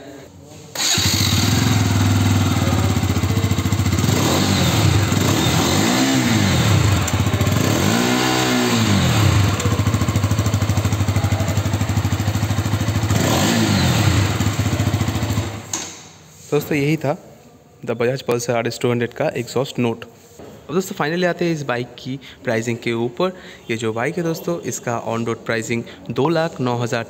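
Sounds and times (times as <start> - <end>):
motorcycle engine idling: 0.8 - 15.7.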